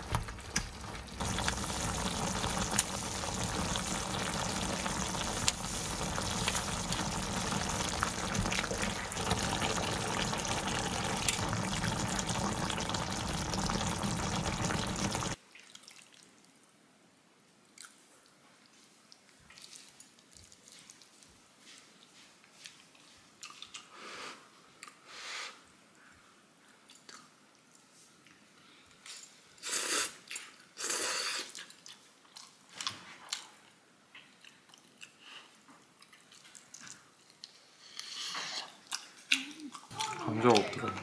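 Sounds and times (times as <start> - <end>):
bubbling liquid rushing: 0.0 - 15.4.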